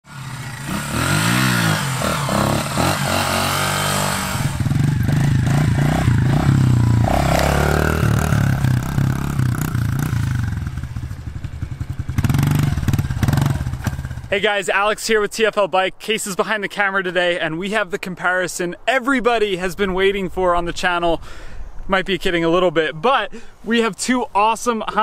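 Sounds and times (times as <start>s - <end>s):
dirt bike engine revving: 0.0s - 14.3s.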